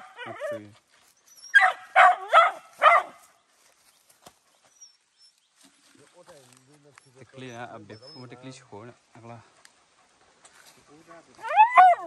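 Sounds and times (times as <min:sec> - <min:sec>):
dog barking: 0:01.5 - 0:03.2, 0:11.4 - 0:12.0.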